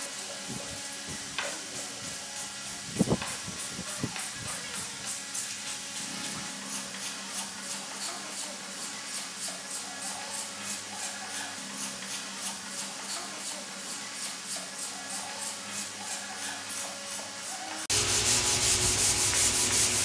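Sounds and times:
sandpaper rubbing on wood: 0.0s - 20.0s.

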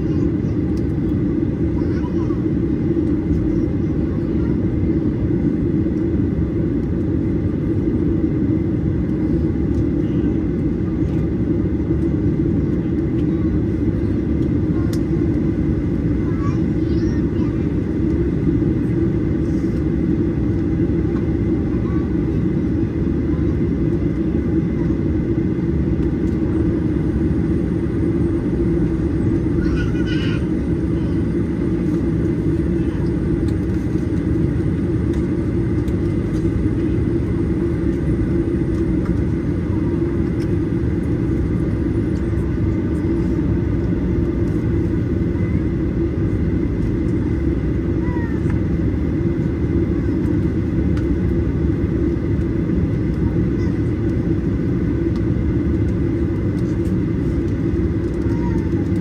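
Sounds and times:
jet cabin rumble: 0.0s - 59.0s.

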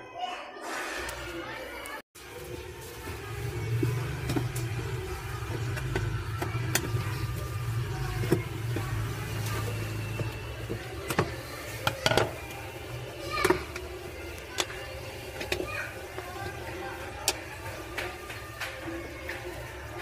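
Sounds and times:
metal tools tapping and scraping: 8.2s - 12.5s.

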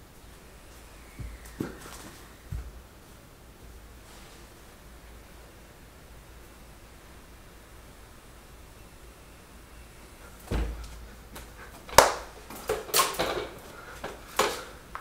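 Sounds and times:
low thump: 10.5s - 10.9s
sharp crack: 11.9s - 13.6s.

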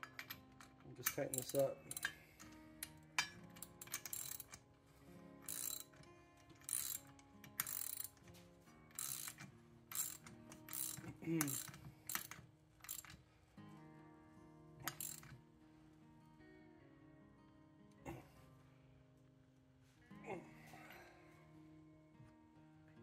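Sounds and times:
socket ratchet clicking: 0.0s - 4.6s, 5.4s - 13.2s, 14.9s - 15.3s.

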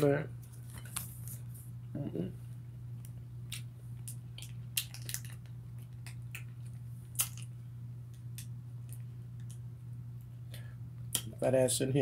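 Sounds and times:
steady low hum: 0.0s - 12.0s
plastic packet crinkling: 4.4s - 6.2s.

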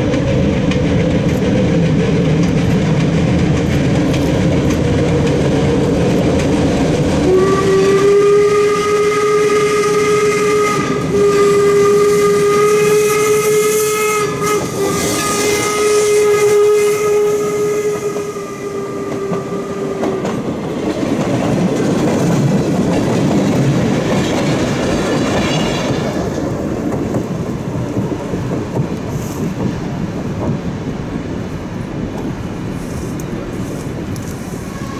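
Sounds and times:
train wheels clattering over rail joints: 0.0s - 8.0s, 17.7s - 31.2s
steam locomotive whistle: 7.2s - 20.5s, 34.5s - 34.9s.

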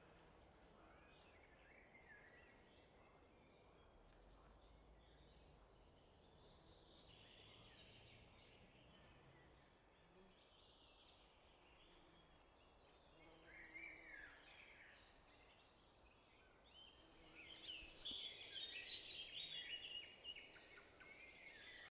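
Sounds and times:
faint birds chirping: 0.0s - 21.9s.

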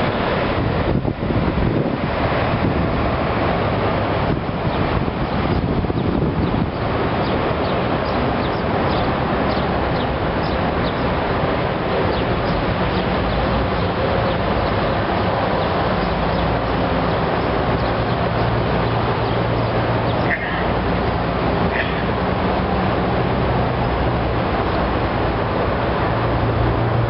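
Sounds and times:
low engine-like hum: 0.0s - 27.0s
small birds chirping: 5.5s - 11.2s, 12.1s - 14.8s, 15.6s - 16.7s, 17.3s - 20.7s.

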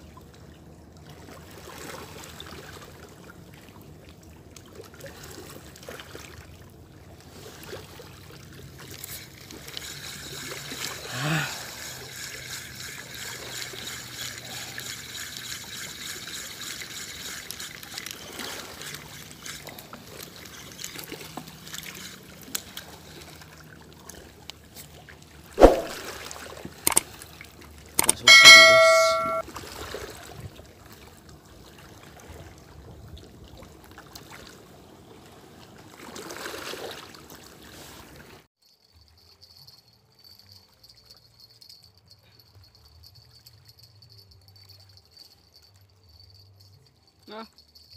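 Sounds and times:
sharp knock: 25.6s - 25.9s, 28.0s - 29.4s
metallic clang: 28.0s - 29.4s
small waves over rocks: 33.4s - 38.4s.

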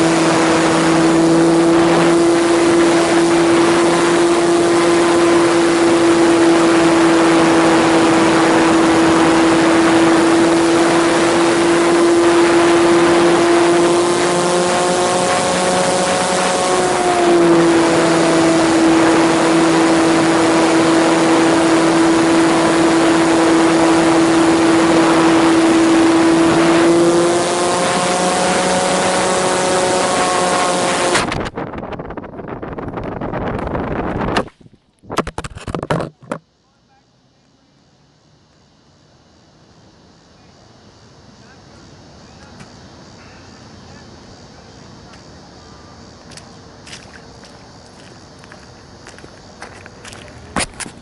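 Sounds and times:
electric motor and propeller running: 0.0s - 31.6s
wind rushing past: 30.0s - 34.8s
plane hitting a tree: 50.4s - 51.0s.

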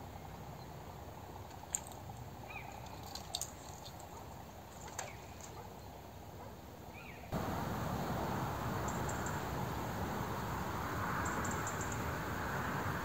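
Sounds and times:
bird chirp: 2.4s - 3.2s, 8.8s - 9.5s, 11.2s - 12.0s
river flowing: 7.4s - 13.0s.

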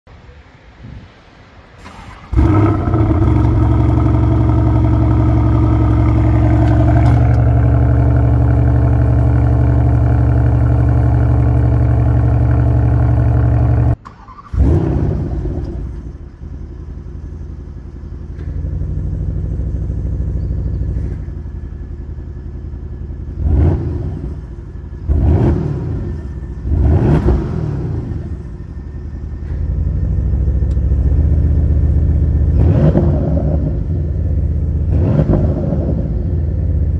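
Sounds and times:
engine starting: 1.8s - 3.6s, 14.0s - 16.1s.

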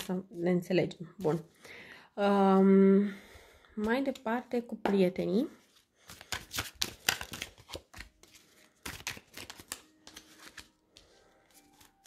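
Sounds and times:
cards flicked and tapped on cloth: 6.0s - 12.0s.

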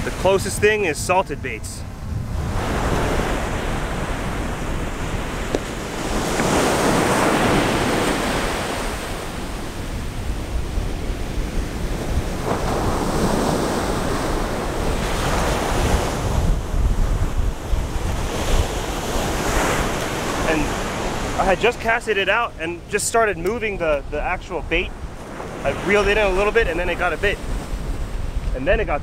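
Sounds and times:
surf breaking on beach: 0.0s - 21.9s
wind buffeting microphone: 0.0s - 29.0s.

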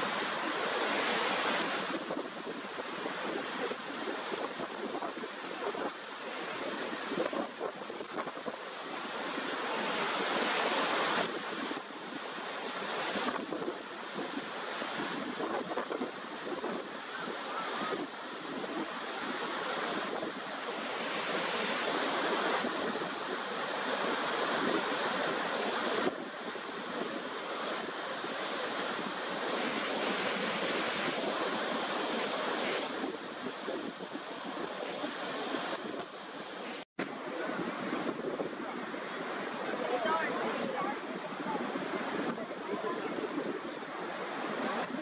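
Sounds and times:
waterfall rushing and crashing: 0.0s - 8.0s, 8.6s - 37.6s.

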